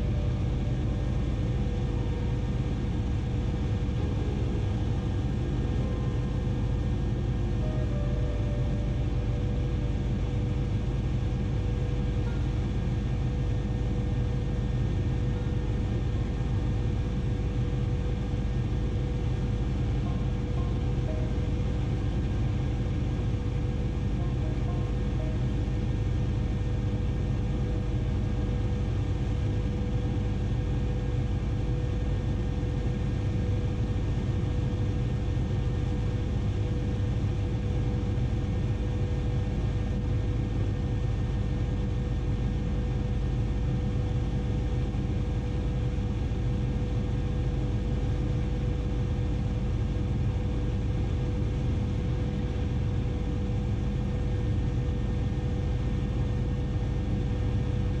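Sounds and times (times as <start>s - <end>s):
helicopter rotor drone: 0.0s - 58.0s.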